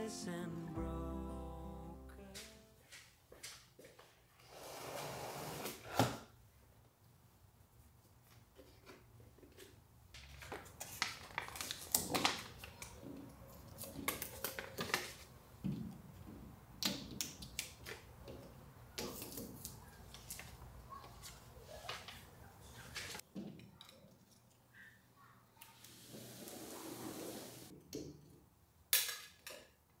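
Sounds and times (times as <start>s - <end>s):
paper crinkling and rustling: 10.2s - 13.0s, 13.6s - 15.3s.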